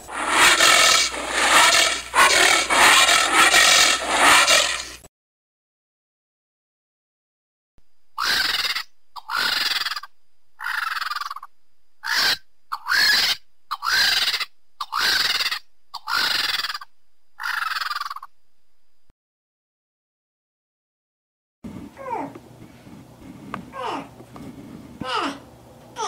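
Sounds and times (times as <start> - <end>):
vulture harsh calls: 0.0 - 5.0, 8.2 - 18.3.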